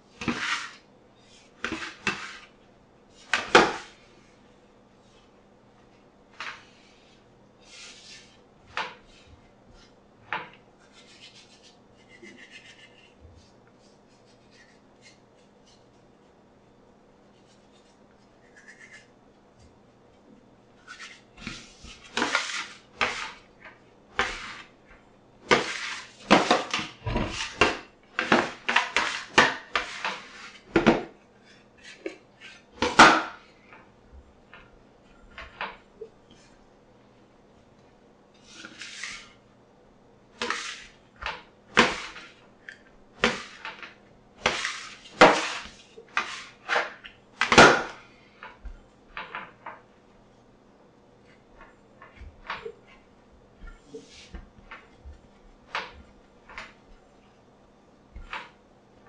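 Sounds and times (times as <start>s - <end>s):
bench scraper scraping on metal: 25.5s - 27.6s.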